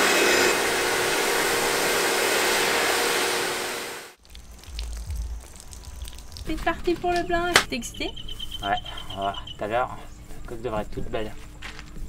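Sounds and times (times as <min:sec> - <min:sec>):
electric power tool running: 0:00.0 - 0:04.1
low rumble: 0:04.2 - 0:06.9.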